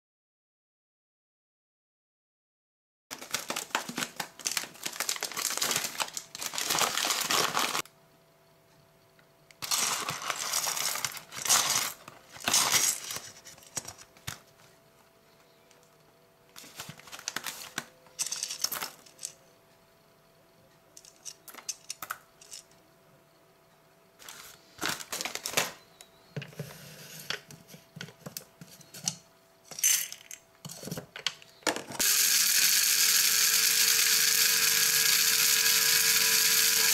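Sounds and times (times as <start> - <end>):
coffee beans rattling: 3.1 - 7.8, 9.6 - 14.0, 16.6 - 19.3, 29.7 - 31.0
paper bag crinkling: 3.1 - 7.8, 9.6 - 14.5, 16.6 - 17.9, 24.2 - 25.8.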